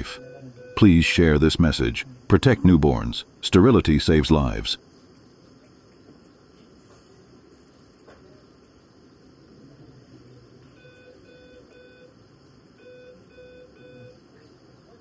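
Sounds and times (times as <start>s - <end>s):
patient monitor alarm beeping: 0.0s - 3.0s, 10.7s - 14.3s
faint steady hum: 0.0s - 15.0s.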